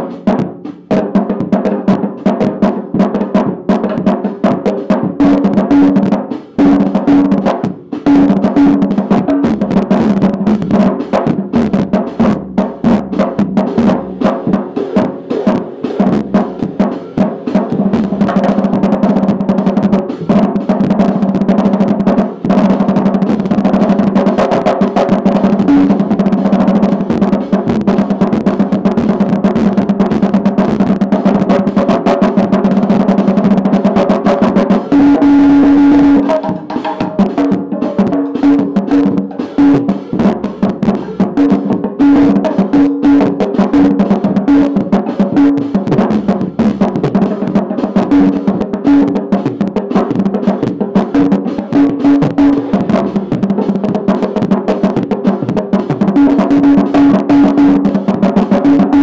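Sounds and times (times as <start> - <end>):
drum roll on toms and snare: 0.0 - 59.0.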